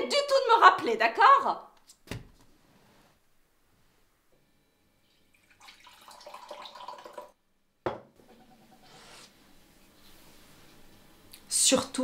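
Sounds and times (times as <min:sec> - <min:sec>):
liquid pouring into a mug: 0:05.1 - 0:07.4.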